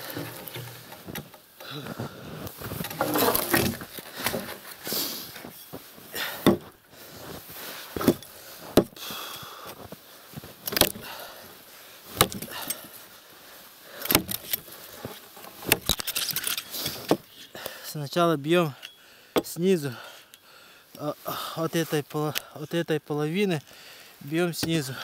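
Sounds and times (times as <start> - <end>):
rustling movement: 0.0 - 9.0, 9.7 - 17.5
axe chopping log: 6.4 - 6.7, 10.7 - 11.1, 12.2 - 12.5, 14.1 - 14.4.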